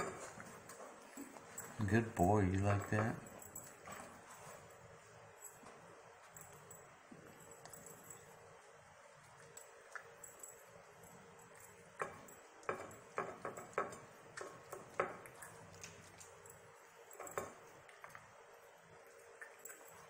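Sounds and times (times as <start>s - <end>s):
dog licking a plate: 7.2s - 20.0s.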